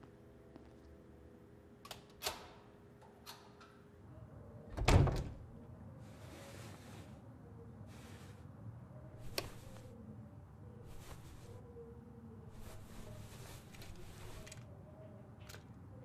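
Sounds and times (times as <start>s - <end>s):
door shutting with thud: 4.7s - 5.4s.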